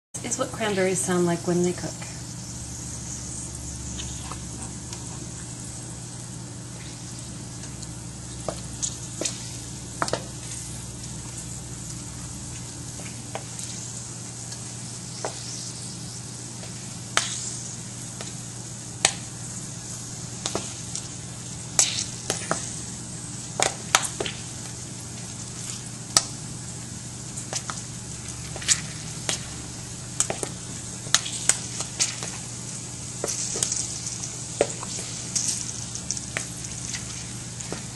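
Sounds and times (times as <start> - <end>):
berries popping: 1.6 - 15.7, 16.4 - 37.9.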